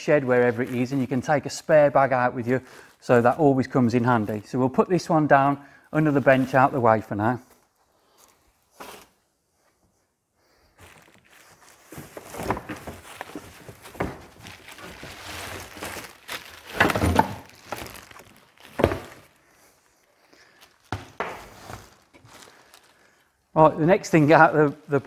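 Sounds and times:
plastic packaging rustling: 0.0s - 5.0s, 10.7s - 25.0s.

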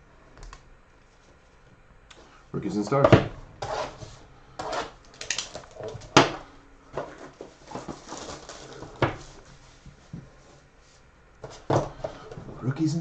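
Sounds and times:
cardboard box rustling and scraping: 7.0s - 9.6s.

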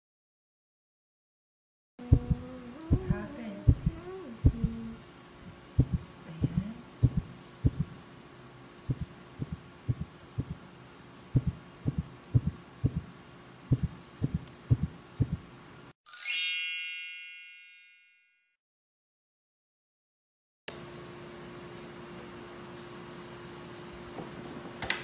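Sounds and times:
heartbeat thumps: 2.0s - 8.0s, 8.9s - 10.7s, 11.3s - 13.1s, 13.7s - 15.5s
faint hum: 2.0s - 15.8s
bell-like chime: 16.1s - 18.6s.

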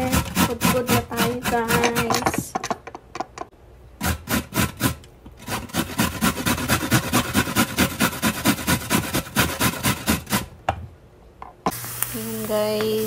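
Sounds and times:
carrot rasping on a grater: 0.0s - 2.1s, 4.0s - 10.5s.

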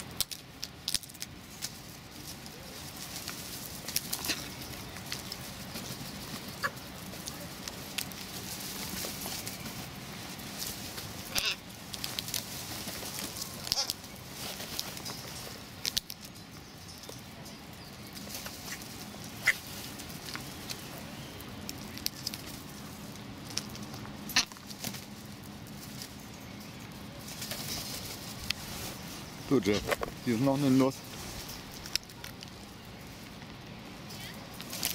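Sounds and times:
crows pecking taps and clicks: 0.0s - 29.0s, 31.0s - 34.9s
crow calls: 11.2s - 11.7s, 19.4s - 19.8s, 24.3s - 24.6s.

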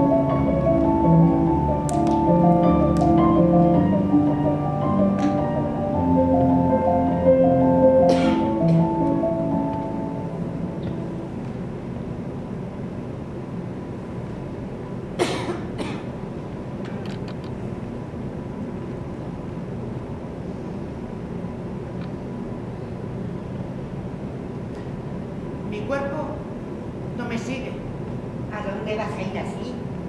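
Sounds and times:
theatre hall hum: 0.0s - 30.0s
person coughing: 8.1s - 8.6s, 15.2s - 16.1s.

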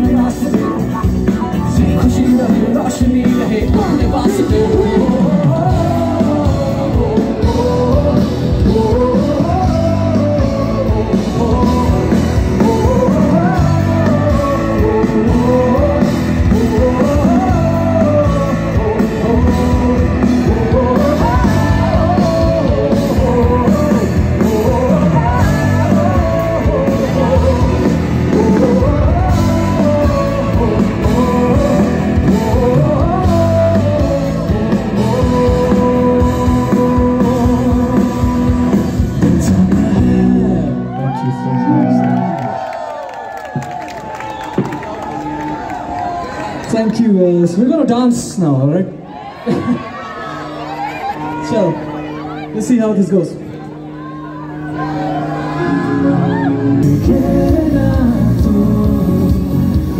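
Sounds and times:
person singing: 0.0s - 42.2s, 54.5s - 59.9s
electric guitars: 0.0s - 59.9s
keyboard: 0.0s - 59.9s.

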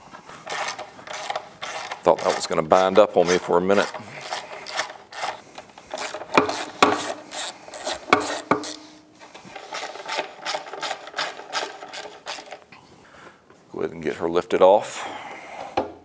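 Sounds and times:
ratchet wrench clicking: 0.5s - 2.5s, 3.2s - 8.9s, 9.6s - 12.6s.

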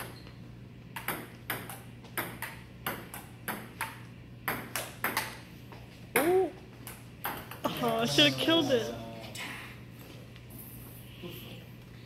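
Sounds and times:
table tennis ball clicking: 1.0s - 5.4s.

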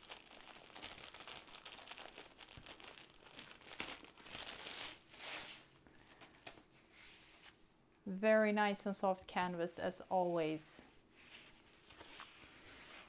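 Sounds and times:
plastic wrapping crinkling: 0.0s - 6.7s.

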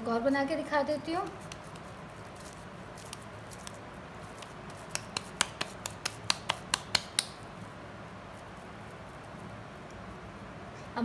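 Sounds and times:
hands patting meat patty: 1.2s - 7.5s.

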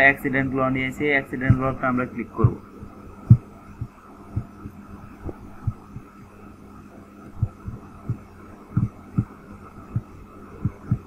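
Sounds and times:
electrical mains hum: 0.0s - 11.0s
dull low thumps: 3.2s - 6.1s, 7.4s - 11.0s.

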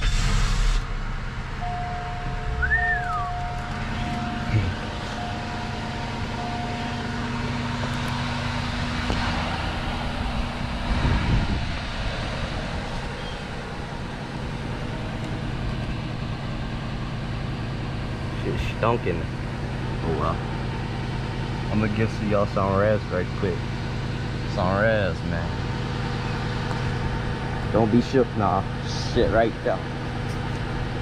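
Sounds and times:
car engine idling: 0.0s - 31.0s.

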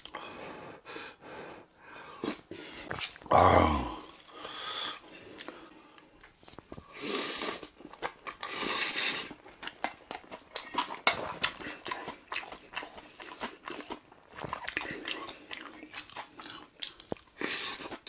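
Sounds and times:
low grunt: 3.3s - 4.1s
chewing and mouth noises: 4.0s - 18.0s.

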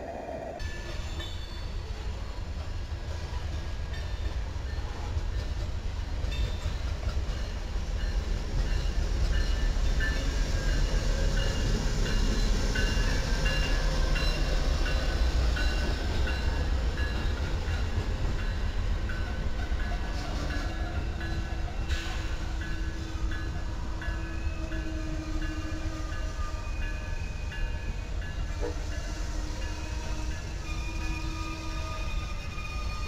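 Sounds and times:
train wheels rumbling on rail: 0.1s - 33.0s
high-pitched wheel squeals: 29.4s - 33.0s.

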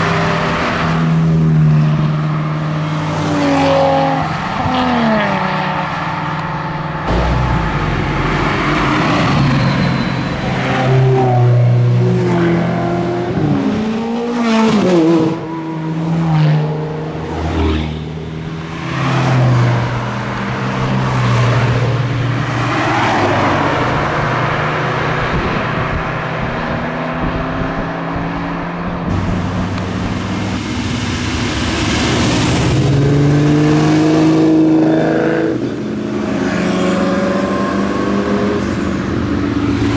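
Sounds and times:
sports car engines revving past: 0.0s - 39.9s
car engine driving up: 6.4s - 12.2s, 23.8s - 34.5s.

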